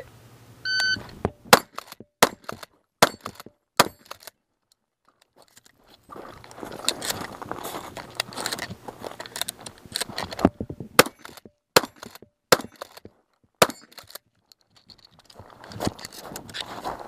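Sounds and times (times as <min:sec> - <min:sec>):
shotgun shots: 0:01.5 - 0:04.1, 0:11.0 - 0:13.0.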